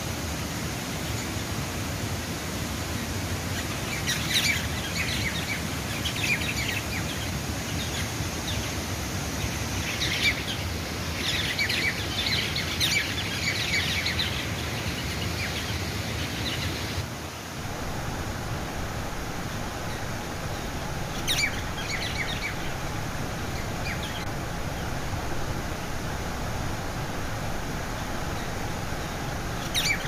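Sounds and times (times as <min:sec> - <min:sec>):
steady rushing noise: 0:00.0 - 0:30.0
small birds chirping: 0:09.4 - 0:30.0.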